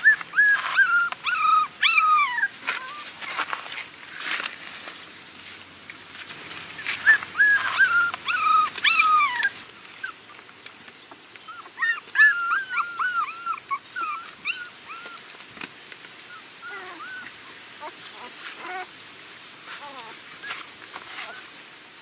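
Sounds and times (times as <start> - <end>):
puppies whimpering: 0.0 - 3.2, 6.8 - 10.4, 11.2 - 15.3, 16.2 - 18.9.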